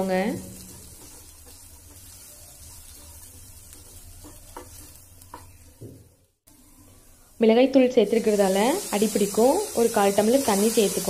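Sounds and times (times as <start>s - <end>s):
quiet frying sizzle: 0.0s - 11.0s
spatula scraping vegetables in pan: 0.4s - 5.8s, 8.2s - 11.0s.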